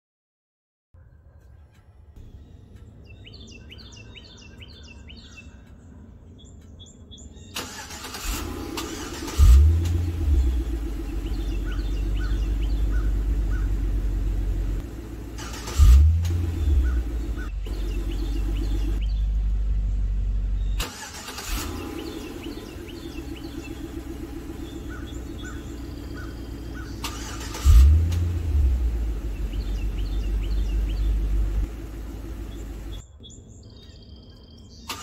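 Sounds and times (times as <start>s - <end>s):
birds chirping: 1.0s - 35.0s
engine starting with loud rev: 7.6s - 19.2s, 20.6s - 33.0s
deep engine idle: 8.4s - 33.0s.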